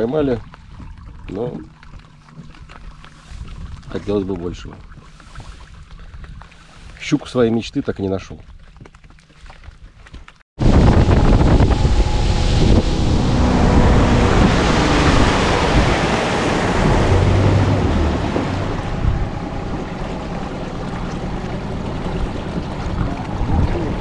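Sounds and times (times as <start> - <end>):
outboard motor running: 0.0 - 7.1, 10.6 - 24.0
water rushing and churning: 0.0 - 24.0
wind buffeting microphone: 3.2 - 6.6, 10.6 - 24.0.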